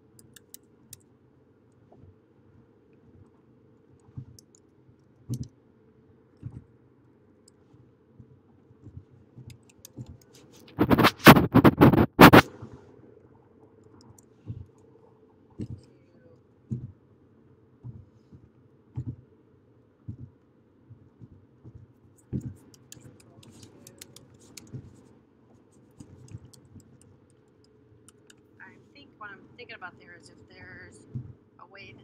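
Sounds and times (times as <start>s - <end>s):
keyboard typing: 0.2s - 0.6s, 9.5s - 12.5s, 22.2s - 25.1s, 25.7s - 28.5s.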